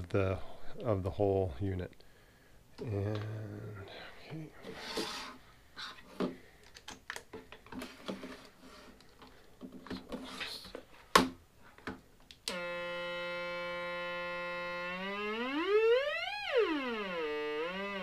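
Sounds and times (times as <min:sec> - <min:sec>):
buzzy synth tone: 0:12.6 - 0:18.0.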